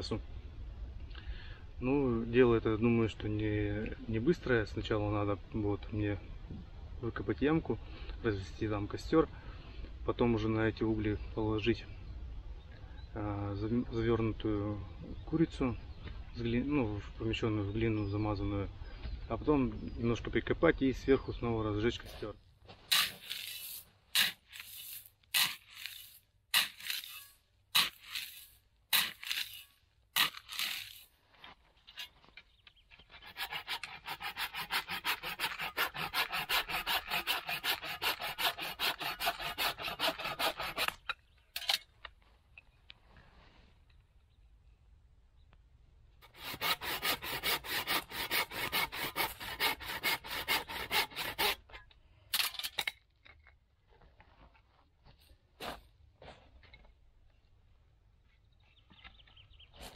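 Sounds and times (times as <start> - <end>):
shovel crunching into soil: 22.0 - 32.4
soil rustling: 22.0 - 44.1
hand saw cutting wood: 22.9 - 31.1, 33.1 - 41.1, 46.2 - 51.7.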